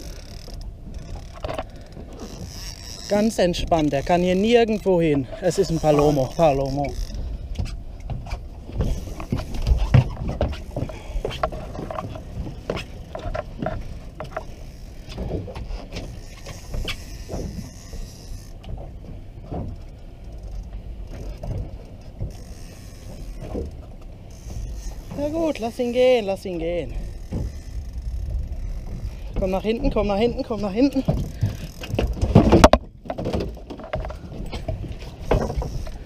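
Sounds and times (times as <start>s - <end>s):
fishing reel clicking: 0.0s - 7.3s, 16.0s - 18.6s, 20.2s - 23.6s, 24.3s - 32.0s
steady low rumble: 26.5s - 32.3s.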